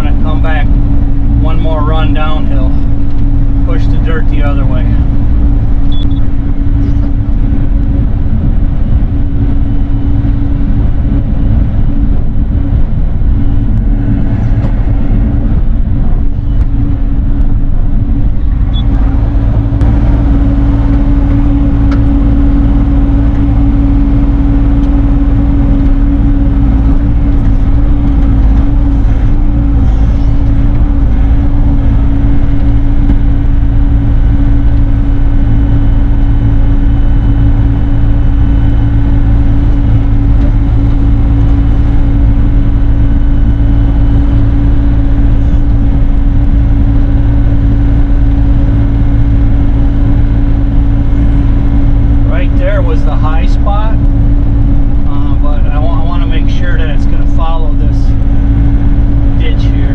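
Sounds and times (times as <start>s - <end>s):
mini excavator diesel engine running: 0.0s - 59.9s.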